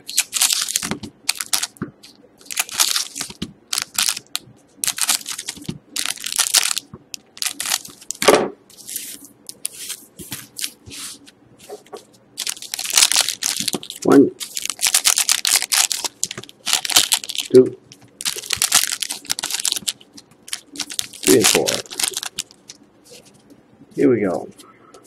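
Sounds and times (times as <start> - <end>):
foil wrappers crinkling: 0.0 - 8.2, 12.4 - 23.3.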